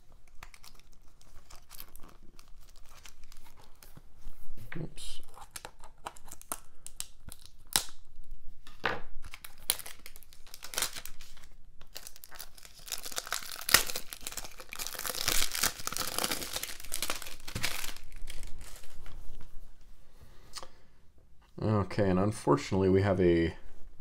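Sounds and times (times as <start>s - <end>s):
plastic wrap crinkling: 0.0s - 4.3s, 5.2s - 19.5s.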